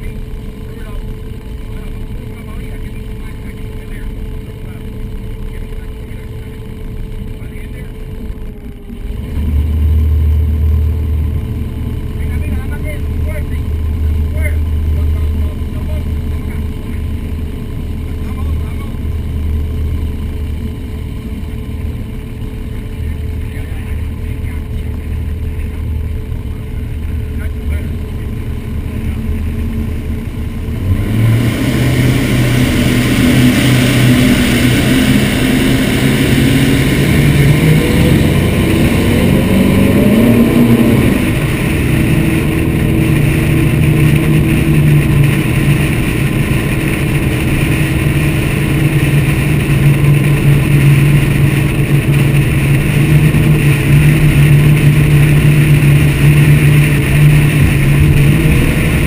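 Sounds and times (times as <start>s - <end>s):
boat engines droning: 0.0s - 59.0s
water rushing: 30.8s - 59.0s
wind over hull: 31.6s - 59.0s.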